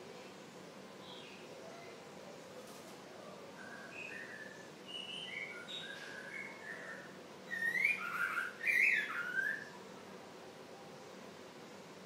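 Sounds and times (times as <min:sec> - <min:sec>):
songbird singing: 0:00.0 - 0:02.5, 0:03.3 - 0:09.9.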